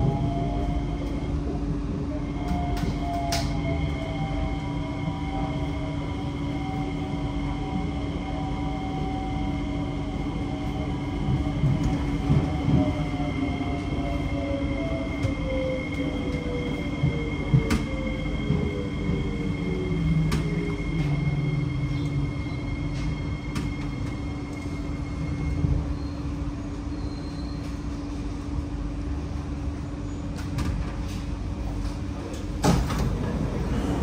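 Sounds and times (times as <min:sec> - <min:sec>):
train inverter whine: 0:00.0 - 0:34.0.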